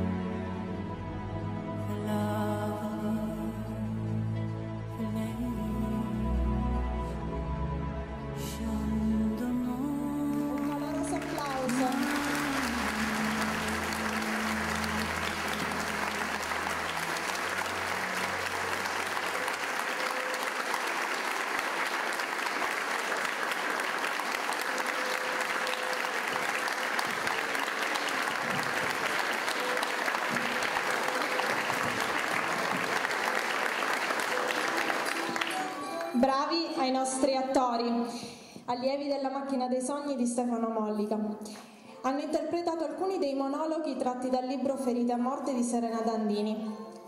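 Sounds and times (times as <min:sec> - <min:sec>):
closing music: 0:08.4 - 0:37.0
audience applauding: 0:10.3 - 0:36.2.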